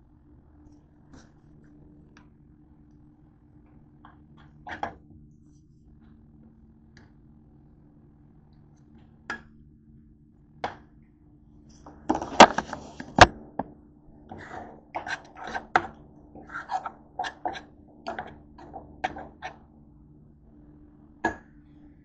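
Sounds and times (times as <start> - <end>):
faint steady hum: 0.0 - 22.0
utensil stirring beans in saucepan: 14.3 - 18.4.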